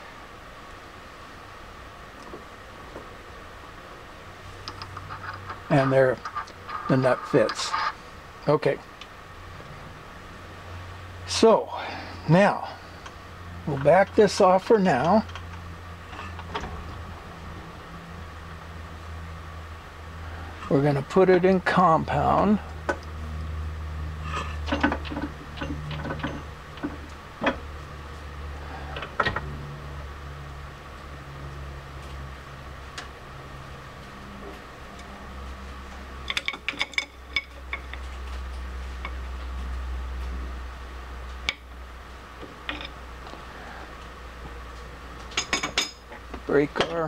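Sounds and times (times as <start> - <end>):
steady low hum: 0.0 - 47.0
metallic clicks and knocks: 24.6 - 27.7, 36.2 - 38.1
wrench clinking on metal: 45.3 - 46.1.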